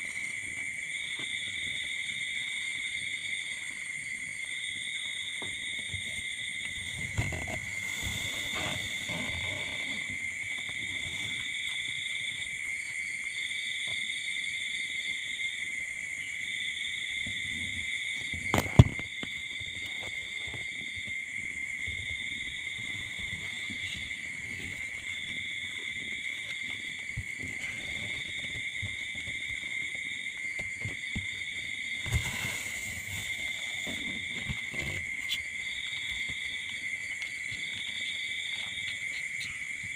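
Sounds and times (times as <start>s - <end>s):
continuous high insect trill: 0.0s - 39.9s
pulsing higher insect trill: 4.3s - 17.2s
soft rustling: 5.7s - 12.3s.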